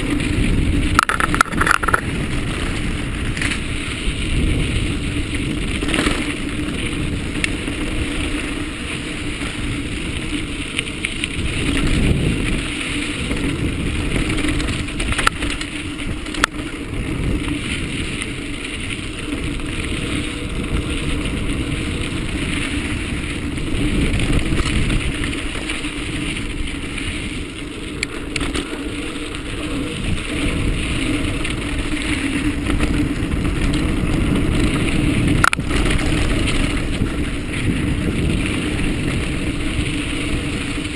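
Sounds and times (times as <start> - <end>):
bike clicks and rattles: 0.0 - 40.9
tyres rumbling on dirt trail: 0.0 - 40.9
wind on microphone: 0.0 - 40.9.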